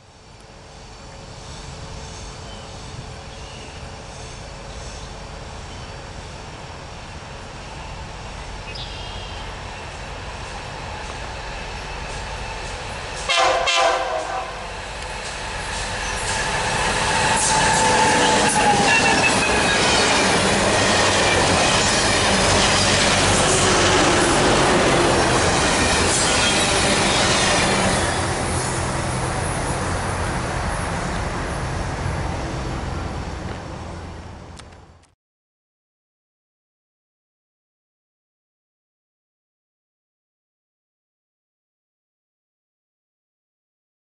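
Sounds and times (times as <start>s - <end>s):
train rumble: 0.0s - 35.1s
wheels squealing on rails: 8.6s - 33.4s
locomotive horn blast: 13.2s - 14.7s.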